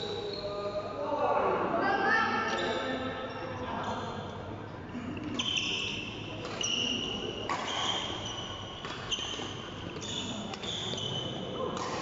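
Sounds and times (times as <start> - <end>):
shoes squeaking on court: 5.3 - 12.0
rackets hitting shuttlecock: 7.4 - 10.9, 11.6 - 12.0.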